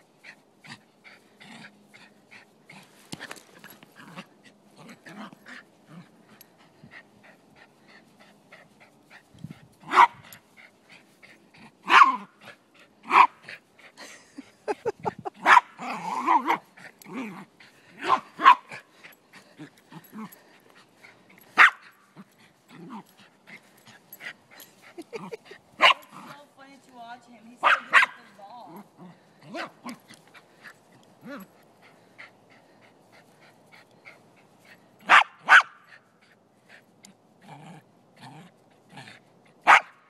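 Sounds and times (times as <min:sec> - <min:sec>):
dog barking: 0:27.6 - 0:28.2, 0:35.1 - 0:35.8, 0:39.7 - 0:39.9.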